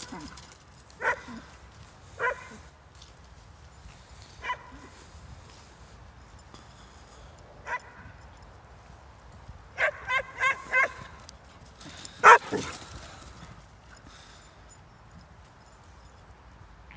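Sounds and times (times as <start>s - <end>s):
dog barking: 1.0s - 1.4s, 2.2s - 2.6s, 4.4s - 4.7s, 9.8s - 11.0s, 12.2s - 12.7s.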